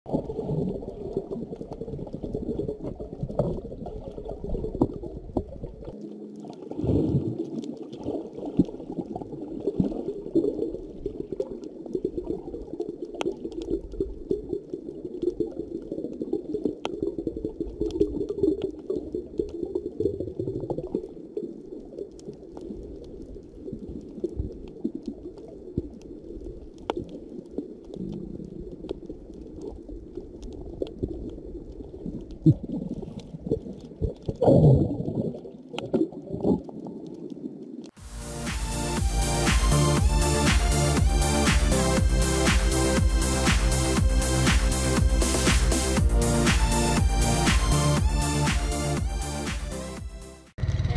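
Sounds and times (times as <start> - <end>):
underwater gurgling rumble: 0.1 - 38.0.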